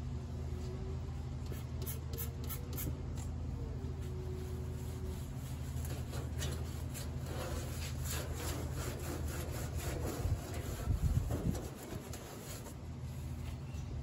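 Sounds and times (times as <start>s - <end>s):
rag scrubbing on metal: 4.6s - 13.5s.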